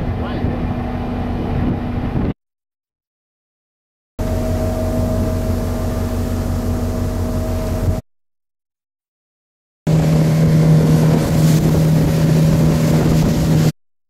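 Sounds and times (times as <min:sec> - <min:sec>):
boat engine humming: 0:00.0 - 0:02.3, 0:04.2 - 0:08.0, 0:09.9 - 0:13.7
wind: 0:00.0 - 0:02.4, 0:04.2 - 0:08.0, 0:09.9 - 0:13.7
water noise: 0:04.2 - 0:08.0, 0:09.9 - 0:13.8.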